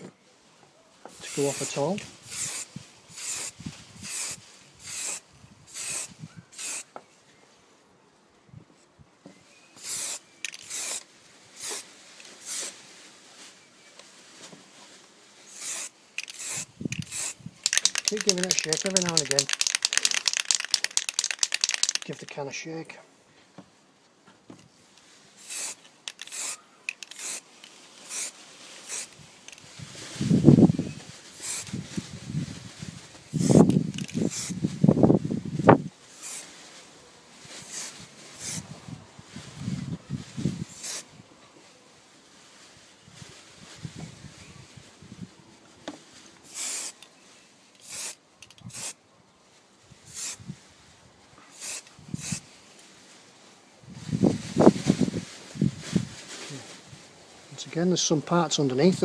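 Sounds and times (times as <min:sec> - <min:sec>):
aerosol spray can hissing: 0:01.2 - 0:06.9, 0:09.8 - 0:11.0, 0:11.6 - 0:12.8, 0:15.5 - 0:22.3, 0:25.4 - 0:29.6, 0:31.3 - 0:31.8, 0:33.3 - 0:34.6, 0:36.2 - 0:36.5, 0:37.6 - 0:38.6, 0:40.7 - 0:41.1, 0:46.4 - 0:47.0, 0:47.8 - 0:49.0, 0:50.1 - 0:50.4, 0:51.5 - 0:52.4
faint spray can clicks: 0:15.6 - 0:22.3.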